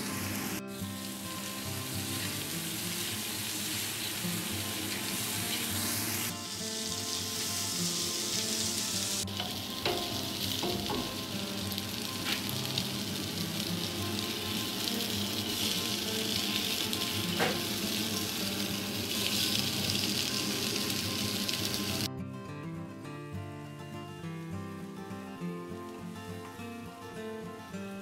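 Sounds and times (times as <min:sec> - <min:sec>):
kebabs sizzling in oil: 0:00.0 - 0:22.1
spatula tapping against pan: 0:09.4 - 0:11.3.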